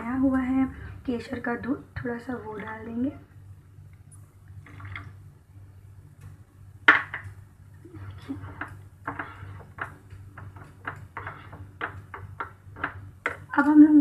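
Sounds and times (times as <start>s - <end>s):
low steady hum: 0.0s - 14.0s
plastic spoon scraping pot: 7.9s - 13.5s.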